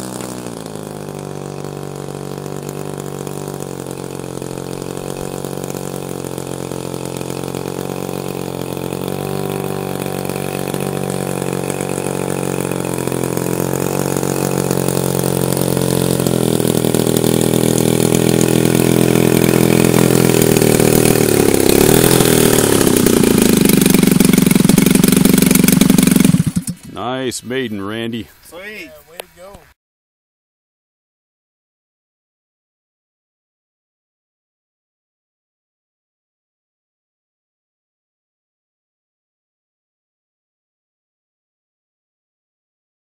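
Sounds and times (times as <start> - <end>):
model plane engine idling: 0.0 - 27.1.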